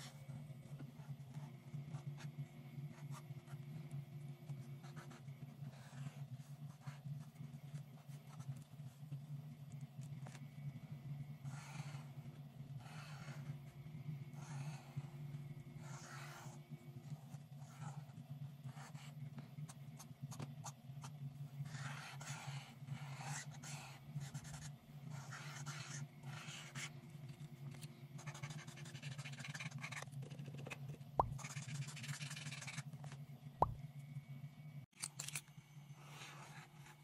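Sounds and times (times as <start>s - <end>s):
steady low hum: 0.0s - 37.0s
marker scratching on paper: 21.6s - 26.9s, 28.2s - 32.8s.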